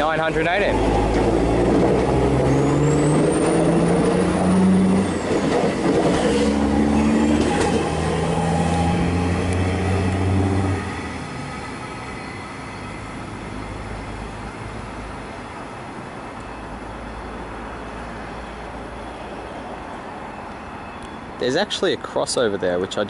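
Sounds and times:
train traction motors whining: 0.0s - 14.0s.

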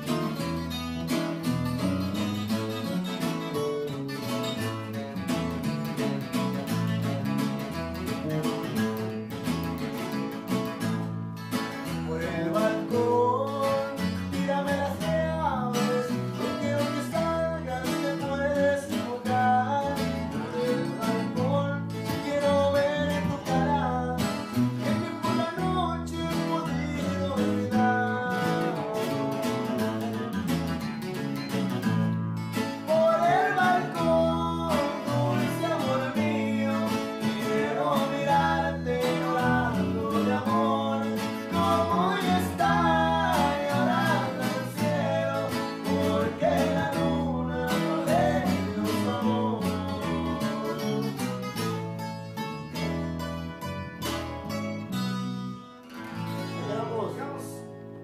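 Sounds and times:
bass line: 0.0s - 58.0s
strummed acoustic guitar: 0.0s - 58.0s
person singing melody: 11.9s - 30.5s, 32.7s - 51.9s.

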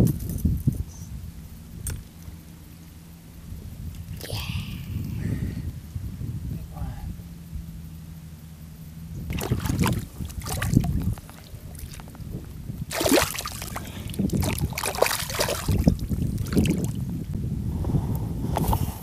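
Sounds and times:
wind buffeting microphone: 0.0s - 2.4s, 3.4s - 7.8s, 8.7s - 19.0s
fish splashing in shallow water: 9.3s - 12.1s, 12.8s - 17.0s.

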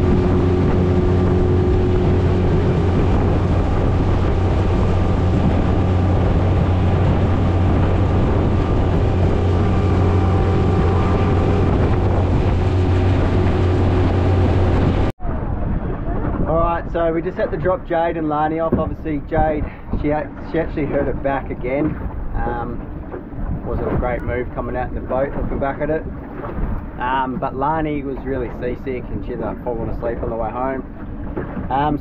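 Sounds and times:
wind rushing: 0.0s - 17.8s
motorboat engine humming: 0.0s - 32.0s
water rushing past hull: 0.0s - 32.0s.

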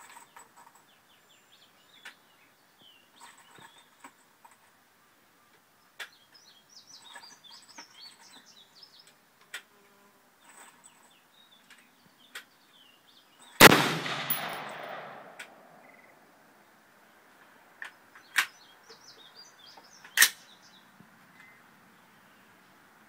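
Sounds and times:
faint birds chirping: 0.0s - 23.0s
rifle shot with echo: 13.6s - 16.0s.

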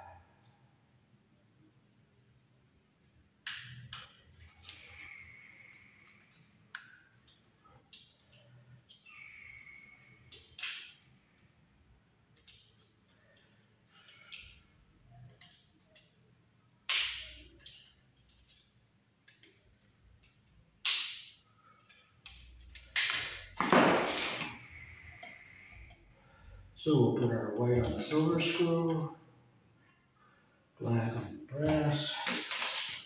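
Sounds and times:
hand tools and wire clicking: 3.4s - 11.6s, 12.2s - 26.6s, 27.2s - 29.0s, 31.6s - 33.0s.

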